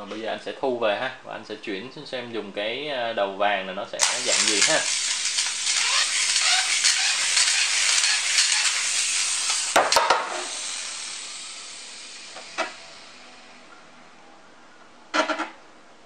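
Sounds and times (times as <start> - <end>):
spinning top whirring and scraping: 4.0 - 13.7.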